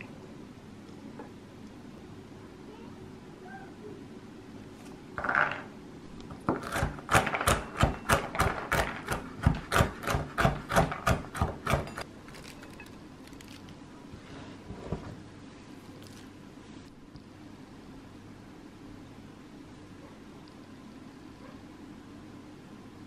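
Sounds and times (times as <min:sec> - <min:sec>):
knife chopping on wooden board: 0:06.4 - 0:12.0.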